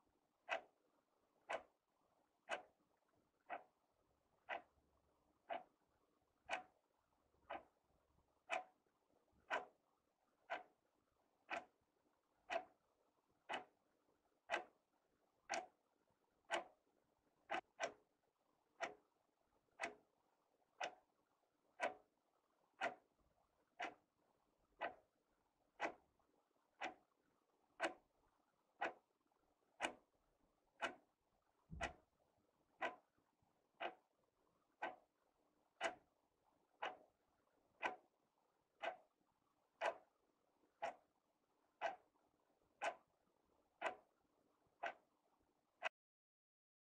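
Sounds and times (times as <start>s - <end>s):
wall clock ticking: 0.4s - 0.8s, 1.4s - 1.8s, 2.4s - 2.8s, 3.4s - 3.8s, 4.4s - 9.8s, 10.4s - 12.8s, 13.4s - 14.9s, 15.5s - 24.1s, 24.8s - 25.1s, 25.7s - 27.2s, 27.8s - 29.1s, 29.7s - 30.1s, 30.7s - 32.1s, 32.7s - 34.1s, 34.8s - 43.2s, 43.8s - 45.2s.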